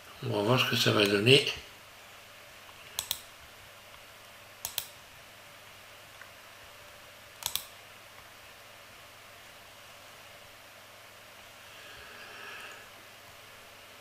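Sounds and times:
computer mouse clicking: 0:02.7 - 0:03.3, 0:04.6 - 0:05.0, 0:07.4 - 0:07.8.

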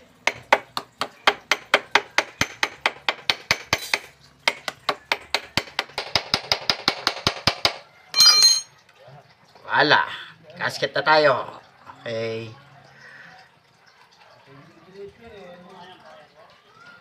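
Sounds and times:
wrench tapping on metal flange: 0:00.2 - 0:08.7
ringing metallic clink: 0:08.2 - 0:08.7.

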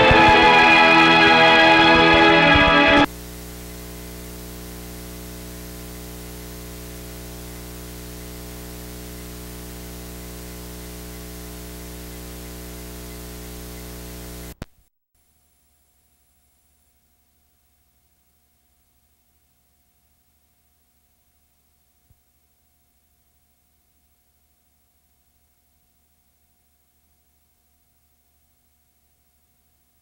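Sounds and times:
analog soundtrack hiss: 0:00.0 - 0:03.1
organ music: 0:00.0 - 0:03.1.

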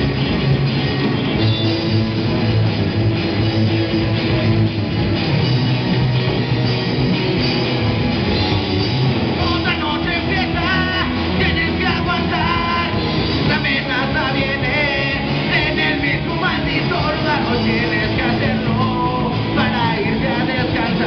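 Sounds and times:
live rock band playing: 0:00.0 - 0:21.0
person singing: 0:09.4 - 0:21.0.

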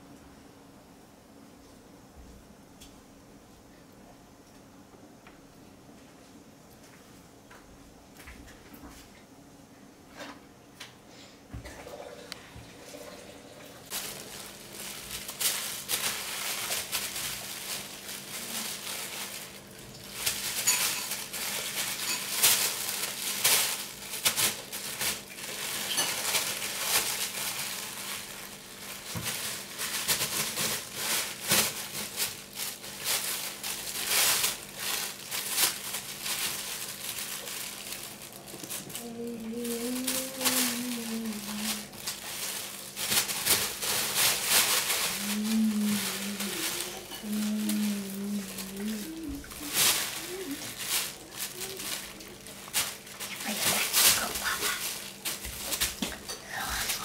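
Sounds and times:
plastic bag crinkling: 0:13.9 - 0:57.0.

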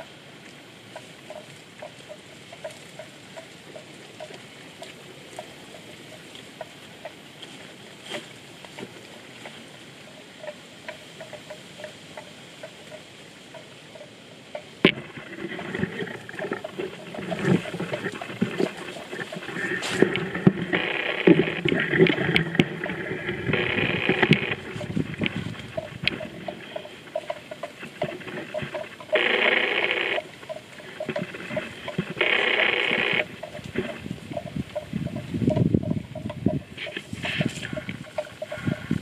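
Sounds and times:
grass being cropped: 0:14.8 - 0:35.3, 0:36.7 - 0:39.0
rustling and knocks: 0:14.8 - 0:39.0.

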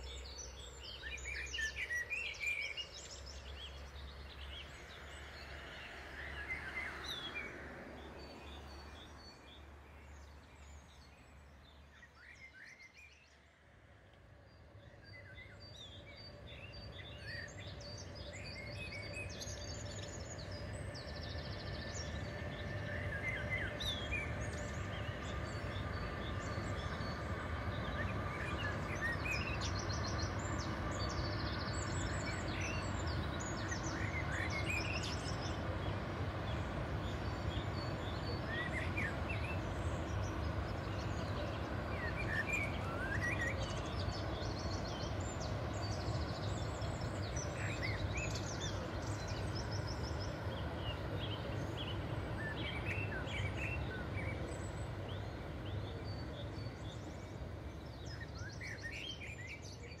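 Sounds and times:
songbirds chirping: 0:00.0 - 1:00.0
train rumbling: 0:16.4 - 0:58.4.

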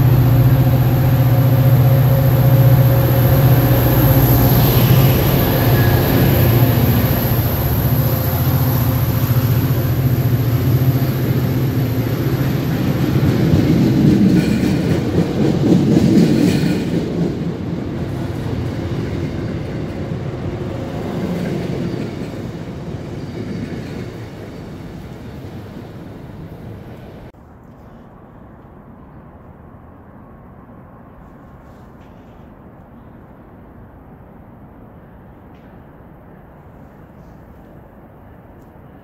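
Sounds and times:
train wheels rushing on rails: 0:00.0 - 0:27.3
diesel locomotive drone: 0:00.0 - 0:39.0.

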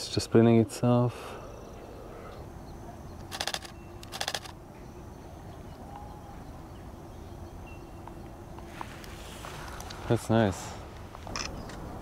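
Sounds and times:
faint outdoor background noise: 0:00.0 - 0:12.0
camera shutter clicks: 0:03.3 - 0:04.6, 0:11.3 - 0:11.8.

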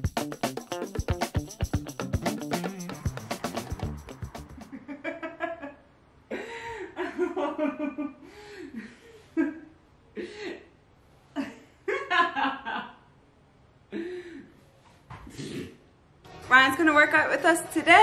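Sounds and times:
woman laughing: 0:04.6 - 0:08.2.

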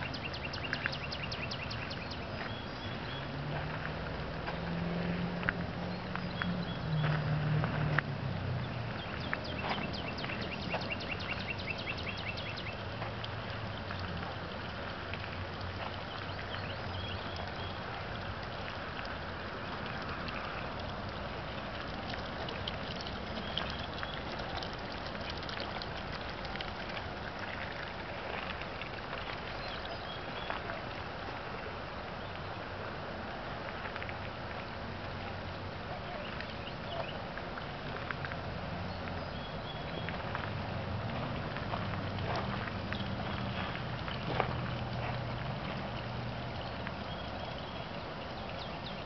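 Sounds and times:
steady outdoor hiss: 0:00.0 - 0:49.0
footsteps crunching on gravel: 0:09.2 - 0:11.0, 0:40.1 - 0:45.9.

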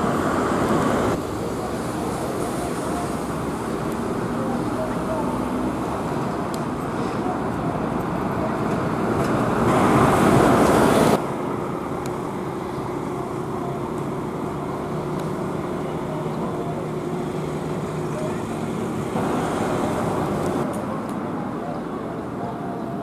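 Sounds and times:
bus passing close: 0:00.0 - 0:23.0
road traffic: 0:00.0 - 0:23.0
coach engine running: 0:07.2 - 0:20.7.

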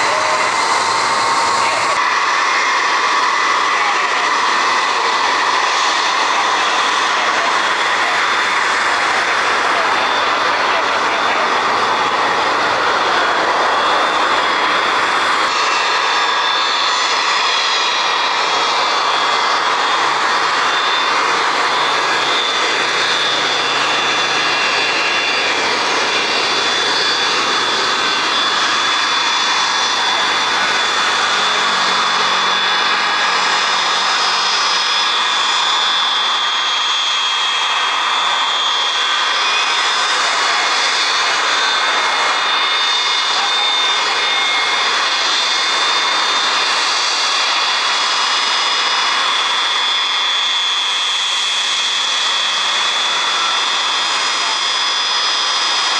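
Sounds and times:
aircraft engines running: 0:00.0 - 0:55.9.

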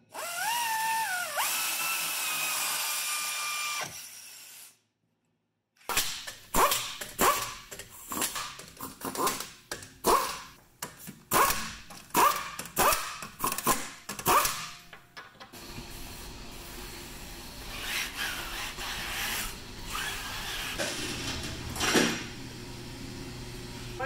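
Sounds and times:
impact wrench bursts: 0:05.9 - 0:10.6, 0:11.3 - 0:14.8.

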